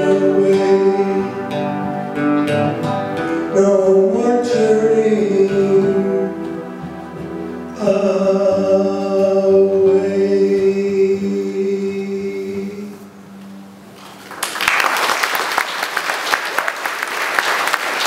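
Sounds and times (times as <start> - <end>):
man singing: 0.0 - 2.6, 3.2 - 13.2
acoustic guitar: 0.0 - 14.3
audience applause: 14.0 - 18.0.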